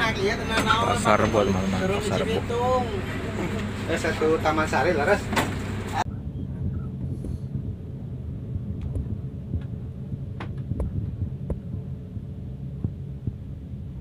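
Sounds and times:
bus engine rumble: 0:00.0 - 0:14.0.

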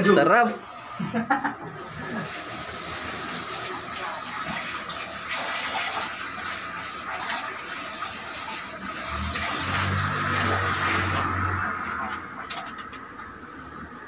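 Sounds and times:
water running from tap: 0:01.8 - 0:12.5.

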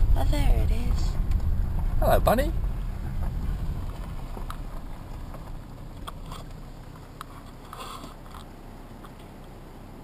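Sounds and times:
tyres rumbling on gravel: 0:00.0 - 0:10.0
gravel crunches and clicks: 0:02.6 - 0:09.6.

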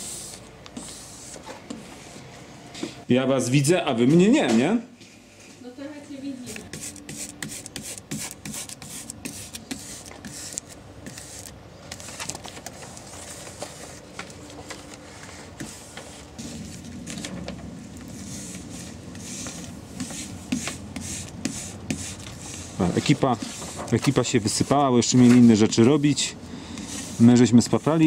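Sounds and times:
squeegee scraping on glass: 0:18.2 - 0:28.0.

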